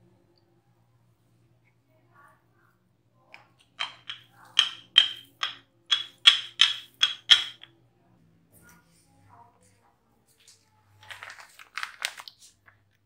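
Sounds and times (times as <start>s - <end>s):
rolling pin clacking on wooden board: 3.8s - 7.7s.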